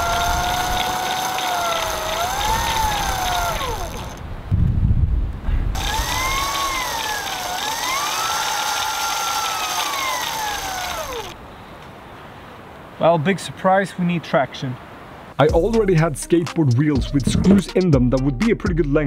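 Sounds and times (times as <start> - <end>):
electric motor whining: 0.0 - 4.2, 5.8 - 11.4
wheel spinning on wet ice: 0.0 - 4.2, 5.8 - 11.4.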